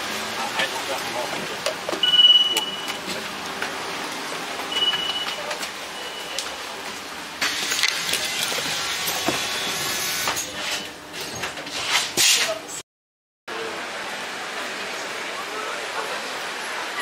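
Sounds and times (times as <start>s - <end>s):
bus running and road noise: 0.0s - 10.0s, 13.5s - 17.0s
card validator beeping: 2.0s - 3.1s, 4.7s - 6.5s.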